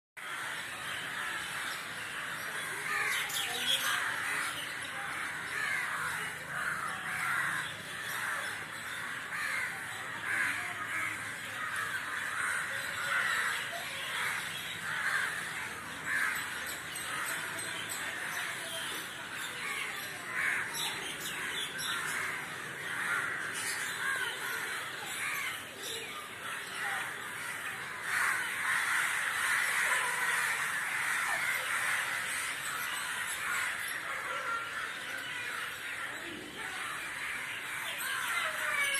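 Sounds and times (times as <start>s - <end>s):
crows cawing: 0.2s - 38.9s.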